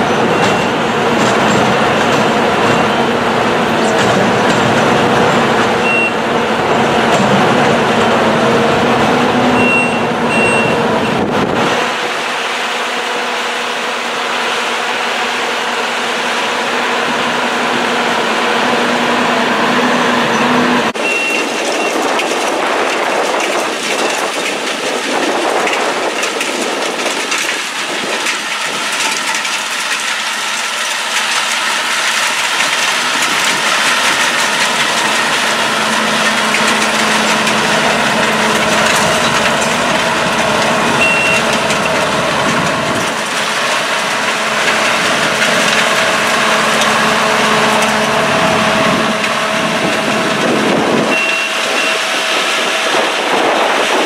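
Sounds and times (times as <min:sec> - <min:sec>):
machinery clatter: 0:00.0 - 0:54.0
track machine engine running: 0:00.0 - 0:54.0
short high beep: 0:05.8 - 0:06.2, 0:09.6 - 0:10.8, 0:21.0 - 0:21.4, 0:41.0 - 0:41.4, 0:51.1 - 0:52.0.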